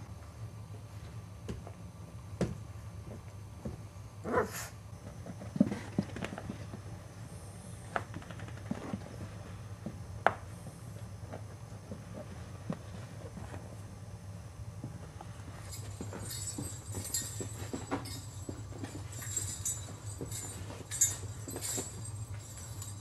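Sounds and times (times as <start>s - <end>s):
puppies scuffling: 14.9s - 23.0s.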